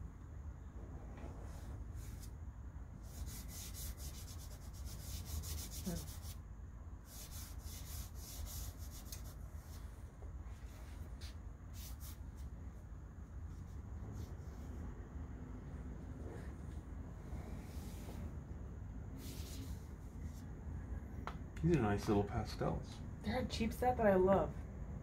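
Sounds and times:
pastel scratching across paper: 0:01.4 - 0:02.3, 0:03.0 - 0:06.4, 0:07.0 - 0:10.0, 0:10.6 - 0:12.5, 0:19.2 - 0:20.5.

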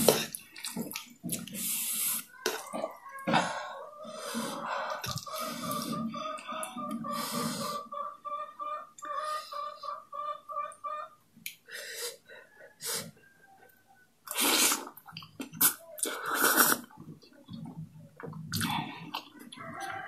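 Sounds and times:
noodles slurping: 0:14.3 - 0:19.9.

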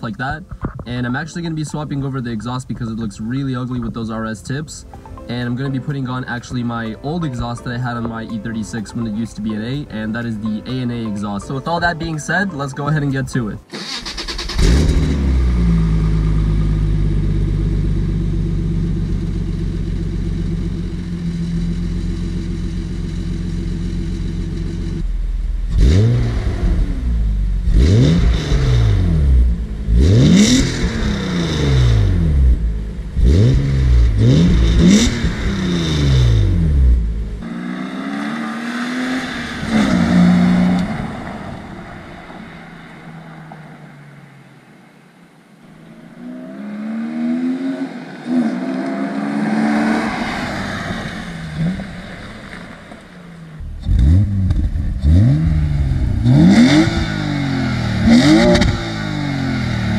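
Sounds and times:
car accelerating away: 0:13.7 - 0:59.9
engine revving in blips: 0:13.8 - 0:44.3, 0:45.8 - 0:59.9
car engine idling: 0:13.8 - 0:46.9, 0:47.9 - 0:59.9.

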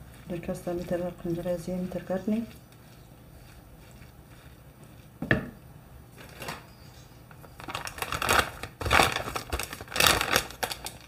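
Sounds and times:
hands rustling batter mixture: 0:00.0 - 0:05.2
knock on bowl: 0:05.2 - 0:05.6.

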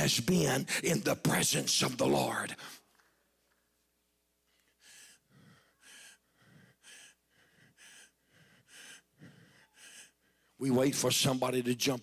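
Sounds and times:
man breathing hard: 0:04.5 - 0:10.6.

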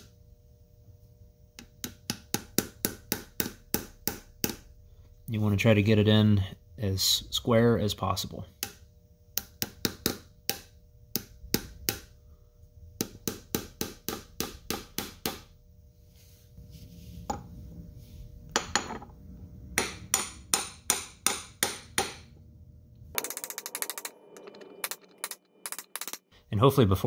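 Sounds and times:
hammer tapping metal: 0:01.6 - 0:04.7, 0:09.4 - 0:12.1, 0:13.0 - 0:15.5, 0:18.6 - 0:19.1, 0:19.8 - 0:22.3.

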